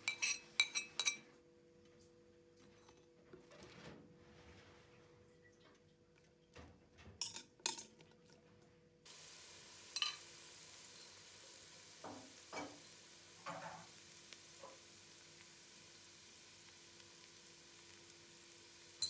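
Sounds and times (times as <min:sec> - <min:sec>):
spoon clinking against pot: 0:00.0 - 0:01.3, 0:10.0 - 0:10.2
onions sizzling in hot fat: 0:09.1 - 0:19.0.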